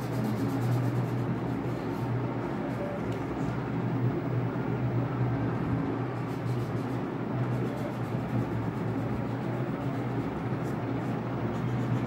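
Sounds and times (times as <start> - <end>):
crayon scratching on paper: 0.0 - 2.1, 6.2 - 12.0
steady low hum: 0.0 - 12.0.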